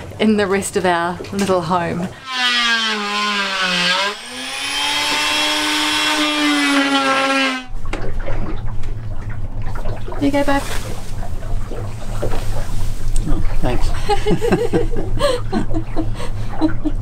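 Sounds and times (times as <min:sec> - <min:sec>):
low rough hum: 0:00.0 - 0:17.0
power tool high whine: 0:02.2 - 0:07.7.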